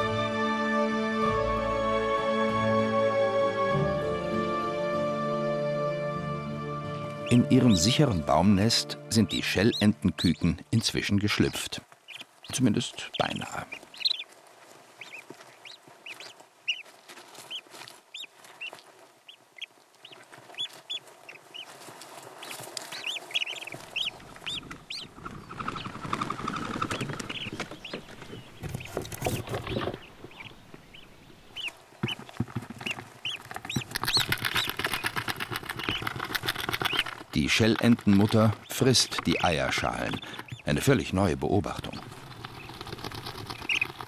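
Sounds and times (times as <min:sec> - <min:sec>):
ducklings peeping: 0:06.7 - 0:44.0
rustling of down and eggshell: 0:13.1 - 0:30.5, 0:31.6 - 0:44.0.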